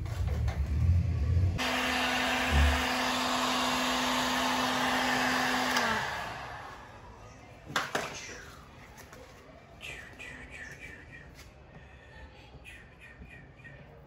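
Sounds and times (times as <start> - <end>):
heat gun blowing hot air: 1.6 - 6.9.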